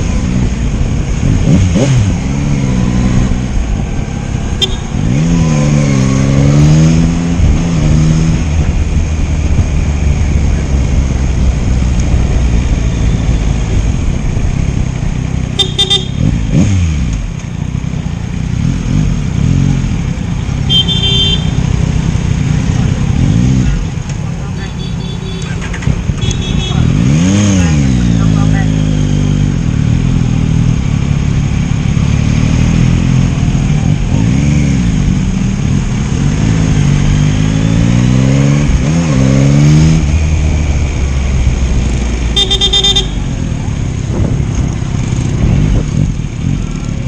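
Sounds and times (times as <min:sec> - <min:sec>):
motorcycle engine revving: 0:00.0 - 0:47.0
vehicle horn beeps: 0:04.6 - 0:05.0, 0:15.6 - 0:16.3, 0:20.7 - 0:21.6, 0:24.6 - 0:25.6, 0:42.4 - 0:43.3.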